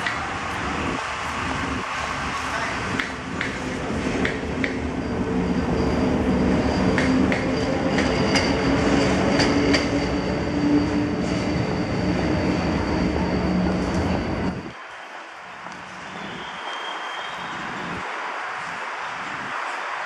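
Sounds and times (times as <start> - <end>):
train wheels rumbling: 0.0 - 14.8
electric train hum: 0.0 - 20.0.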